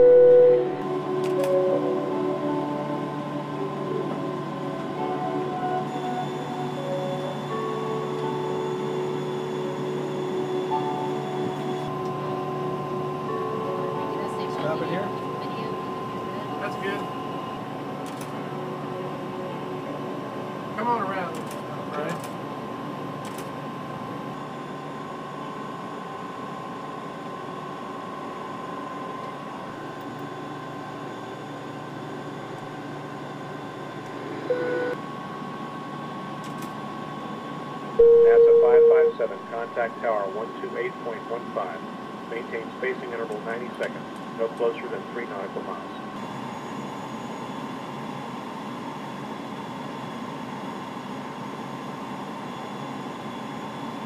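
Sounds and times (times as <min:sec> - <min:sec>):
short beep: 0:00.0 - 0:00.8, 0:38.0 - 0:39.2
aircraft engine hum: 0:00.0 - 0:54.0
faint steady whine: 0:00.0 - 0:54.0.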